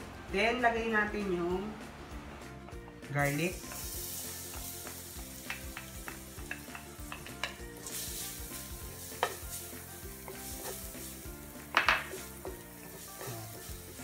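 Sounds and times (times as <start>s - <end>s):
garlic sizzling in oil: 2.7s - 14.0s
spatula knocking on pan: 4.5s - 7.6s, 11.6s - 14.0s
wooden spatula scraping wok: 6.5s - 14.0s.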